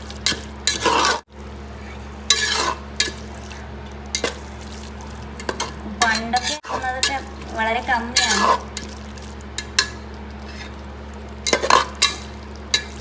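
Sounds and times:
steady low hum: 0.0 - 13.0
spoon scraping a metal pot: 0.2 - 1.2, 2.3 - 3.2, 5.4 - 7.2, 8.1 - 8.7.

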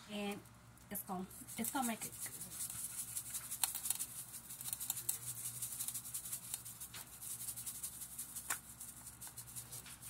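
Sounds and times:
seasoning shaker rattling: 1.2 - 10.0.

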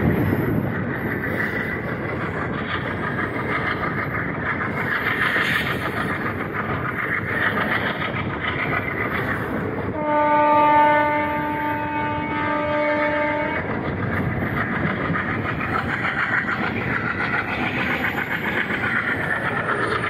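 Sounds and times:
wheels clicking over rail joints: 0.0 - 10.0, 11.1 - 20.0
train running at speed: 0.0 - 20.0
locomotive horn blast: 10.0 - 13.6.

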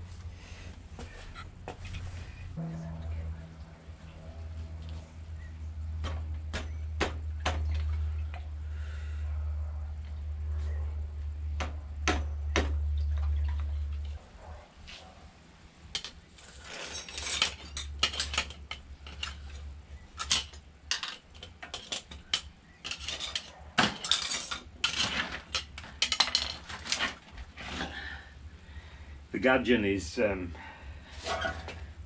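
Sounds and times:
low hum: 0.0 - 16.1
metal tools clinking and scraping: 16.0 - 28.0, 31.2 - 31.8.

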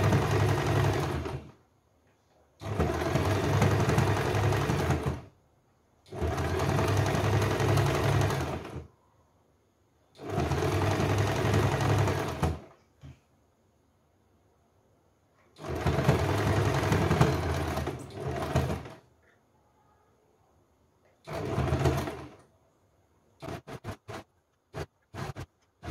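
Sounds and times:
electric sewing machine stitching: 0.0 - 1.6, 2.6 - 5.3, 6.1 - 8.9, 10.2 - 12.7, 15.6 - 19.0, 21.2 - 22.4, 23.4 - 25.9.

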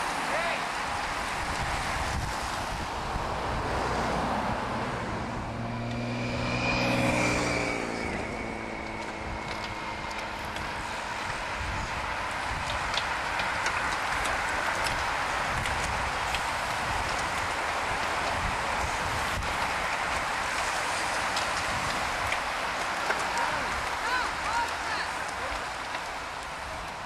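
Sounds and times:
wind noise: 0.0 - 27.0
vehicle engine passing by: 3.1 - 11.5
bicycles ticking past: 5.1 - 27.0.

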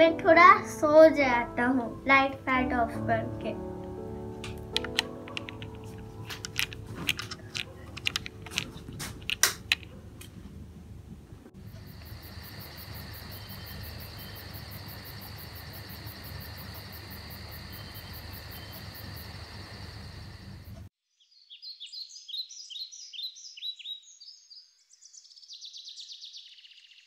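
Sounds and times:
plastic pieces clicking and tapping: 4.4 - 9.9
crickets chirping: 11.6 - 20.9.

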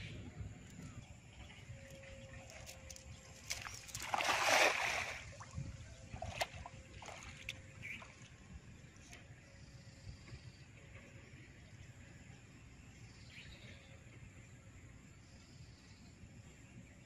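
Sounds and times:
river water splashing: 2.1 - 8.4.

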